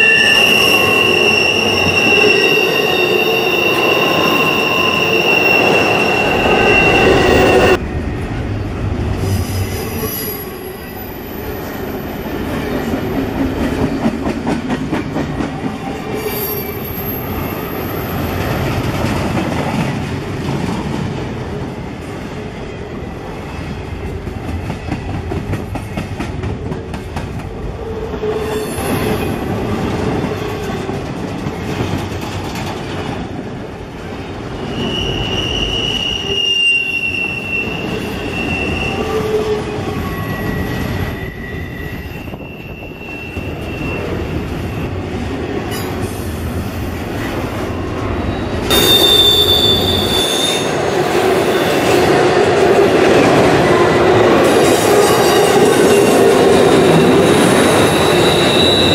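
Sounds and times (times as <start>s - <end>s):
high-pitched wheel squeals: 0.0s - 7.8s, 34.6s - 44.9s, 48.3s - 50.8s, 56.9s - 58.9s
steel wheels rumbling on rail: 0.0s - 58.9s.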